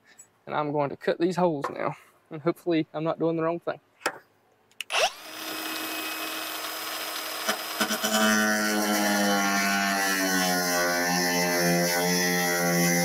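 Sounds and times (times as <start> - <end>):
grinder whining: 4.8 - 13.0
grinder cutting sheet metal: 4.9 - 13.0.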